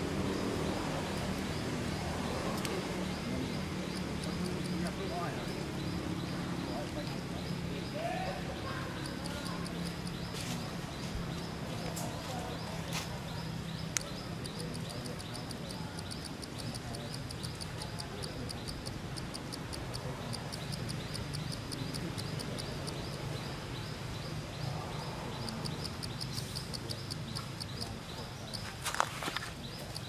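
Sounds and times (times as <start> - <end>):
high-pitched chirping: 6.8 - 11.1
sharp clicks: 9.0 - 10.7, 13.0 - 23.3, 25.3 - 30.0.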